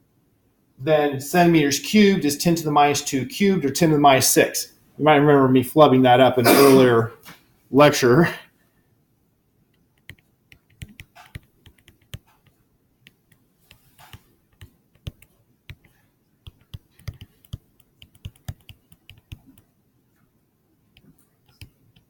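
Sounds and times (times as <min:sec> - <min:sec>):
stylus tapping on tablet screen: 0:09.7 - 0:19.7.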